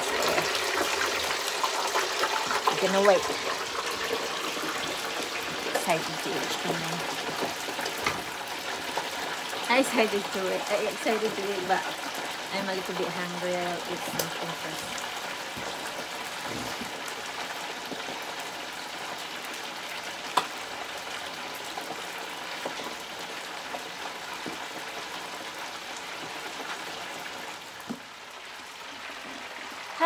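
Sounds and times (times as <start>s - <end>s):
oil popping: 0.0s - 9.7s
chicken wings deep-frying in oil: 0.0s - 30.0s.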